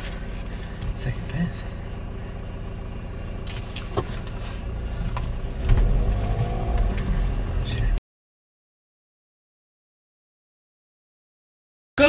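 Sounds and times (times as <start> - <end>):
car engine and road rumble: 0.0 - 8.0.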